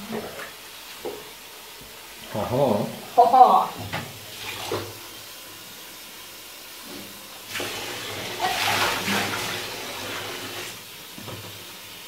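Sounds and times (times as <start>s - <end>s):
water pouring and splashing: 3.8s - 12.0s.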